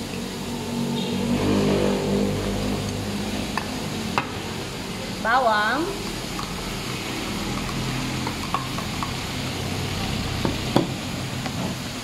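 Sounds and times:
spoon tapping against bowl: 6.0 - 6.6, 7.5 - 9.2.

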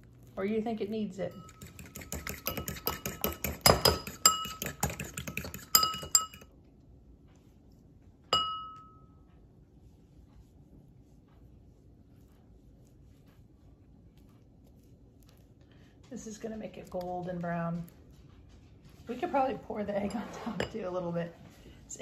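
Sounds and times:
fork clinking on ceramic bowl: 1.3 - 6.5.

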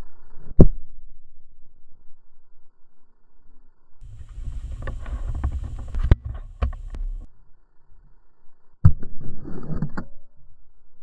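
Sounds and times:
fur rubbing on microphone: 4.0 - 7.3
sharp clicks and knocks: 4.1 - 7.3.

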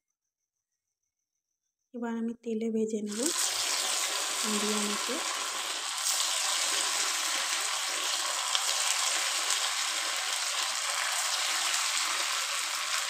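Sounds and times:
food sizzling in hot oil: 3.1 - 13.0.

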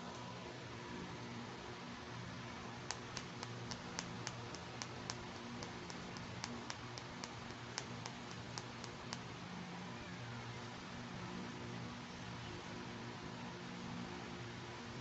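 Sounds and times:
fingernails tapping on plastic: 2.8 - 9.2.

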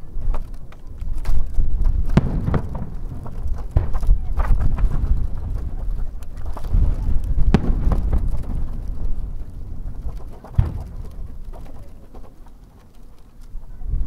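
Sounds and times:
firework shells booming: 1.3 - 12.7
sharp firework reports: 1.7 - 12.2.

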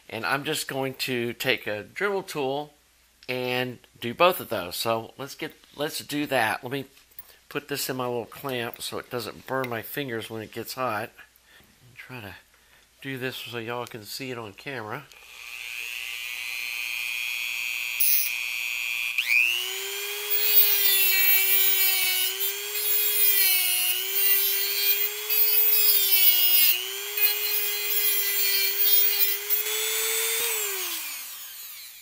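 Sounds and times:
rotary tool grinding metal: 15.2 - 32.0.

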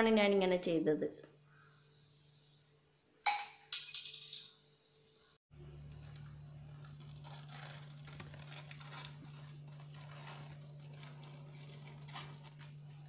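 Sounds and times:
foil crinkling and tearing: 6.0 - 13.0.

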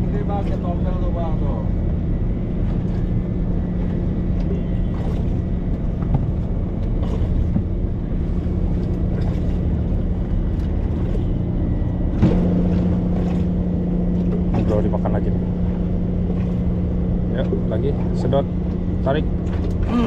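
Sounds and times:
outboard motor idling: 0.0 - 20.0
loud bump: 12.1 - 13.8.

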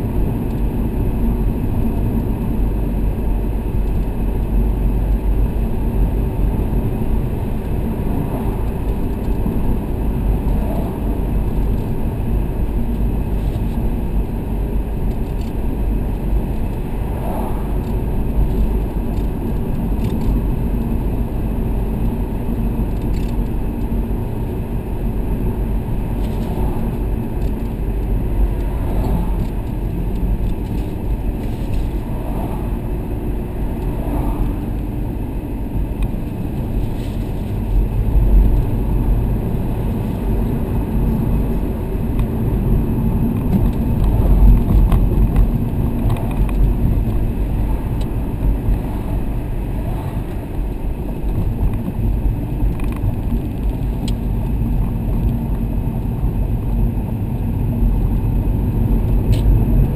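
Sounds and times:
car engine rumble from inside: 0.0 - 59.9.

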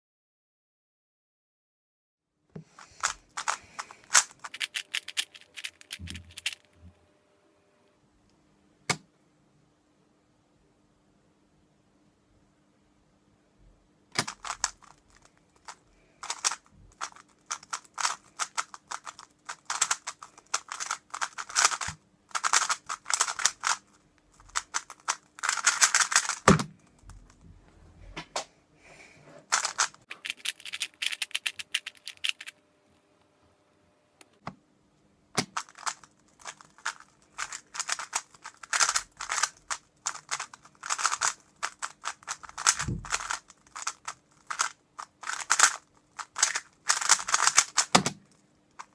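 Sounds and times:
puzzle cube plastic clicking: 2.7 - 6.7, 14.1 - 27.4, 29.5 - 32.6, 35.4 - 48.9.

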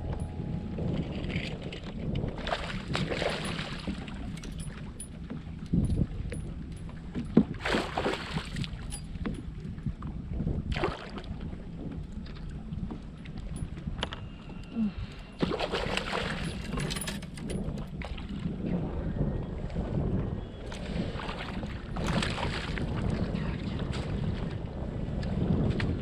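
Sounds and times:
water splashing: 0.0 - 4.6, 7.6 - 8.9
wind on microphone: 0.0 - 26.0.

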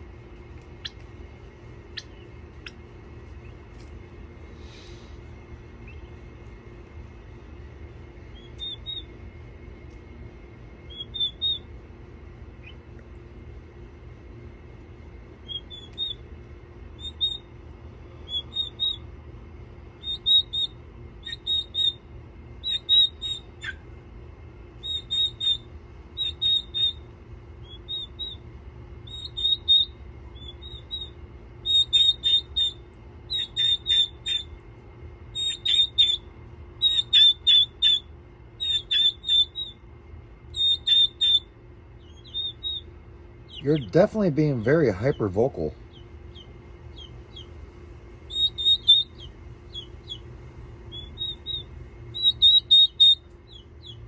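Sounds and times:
faint steady hum: 0.0 - 54.0
turkey poults peeping: 0.7 - 1.1, 1.9 - 3.9, 8.3 - 9.1, 10.9 - 11.7, 15.5 - 16.2, 18.3 - 19.0, 20.1 - 22.0, 22.6 - 23.8, 24.8 - 25.6, 26.2 - 27.0, 29.1 - 34.5, 35.4 - 36.2, 36.8 - 38.0, 38.6 - 39.8, 40.6 - 42.9, 43.5 - 47.6, 48.3 - 50.3, 50.9 - 54.0.

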